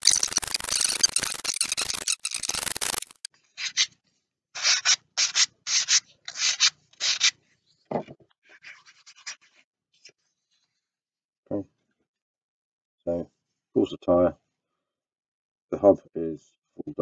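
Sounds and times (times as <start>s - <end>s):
sandpaper rubbing wood: 4.6s - 7.4s.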